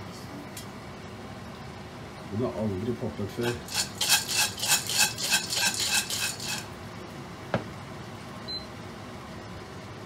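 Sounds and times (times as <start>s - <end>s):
popcorn kernels rattling in pot: 3.4s - 6.7s.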